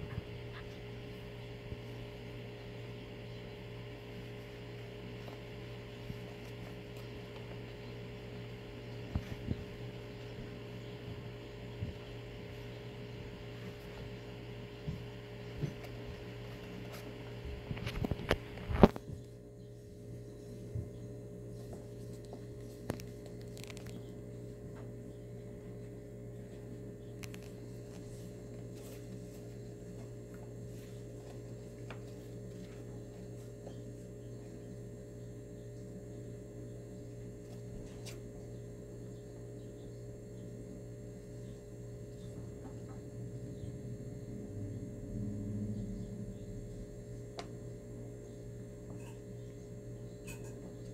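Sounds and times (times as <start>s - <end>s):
low electrical hum: 0.0s - 50.9s.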